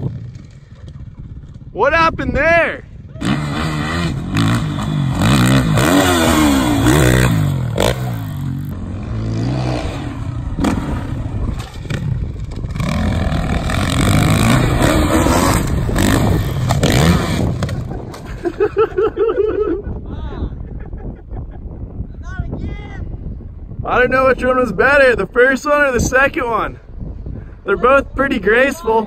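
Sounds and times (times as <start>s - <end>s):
dirt bike engine revving: 3.2s - 18.0s.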